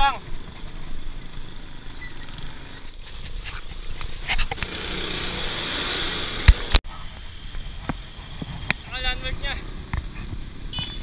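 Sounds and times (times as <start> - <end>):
wind buffeting camera: 6.3 - 10.8.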